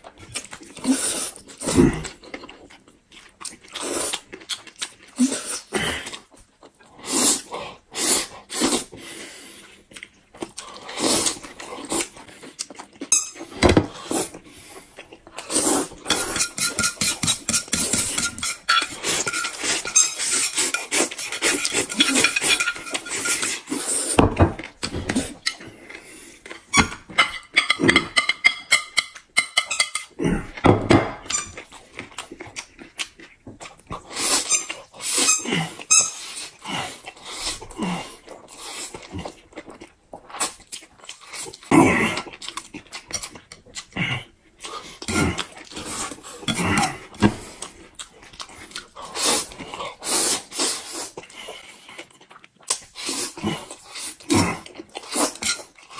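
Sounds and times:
noodles being slurped: 10.6s - 12.8s, 13.9s - 24.2s, 44.6s - 55.9s.

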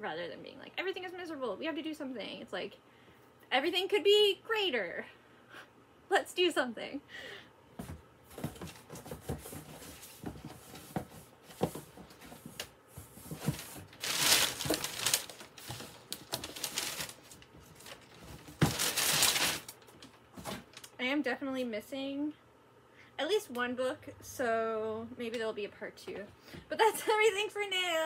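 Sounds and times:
packaging crinkling and rustling: 8.4s - 21.0s.

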